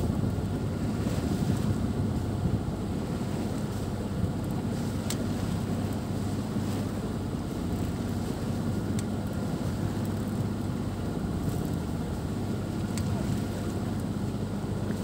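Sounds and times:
wind buffeting microphone: 0:00.0 - 0:05.7
water rushing along hull: 0:00.0 - 0:15.0.

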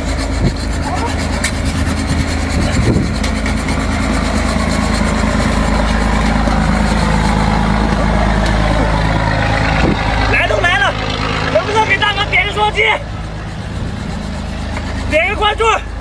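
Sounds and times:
hacksaw rasping through shell: 0:00.0 - 0:06.4
low engine hum: 0:00.0 - 0:16.0.

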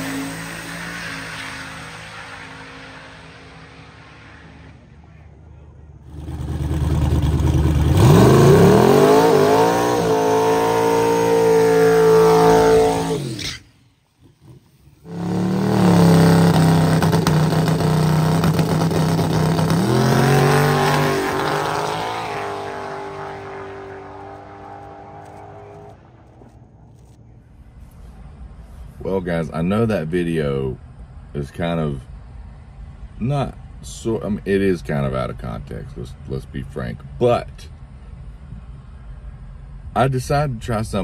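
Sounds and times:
drag car engines at full throttle: 0:00.0 - 0:27.2.

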